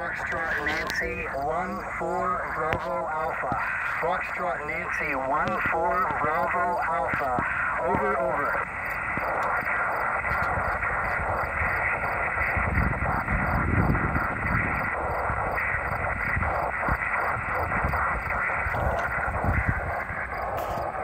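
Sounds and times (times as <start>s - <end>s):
radio receiver hiss: 0.0s - 21.0s.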